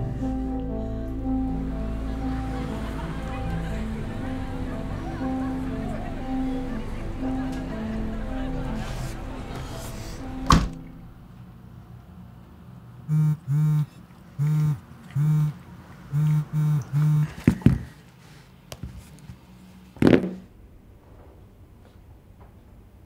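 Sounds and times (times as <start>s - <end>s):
heavy thud: 10.4s - 10.9s
phone vibrating on a desk: 13.1s - 15.6s, 16.2s - 17.4s.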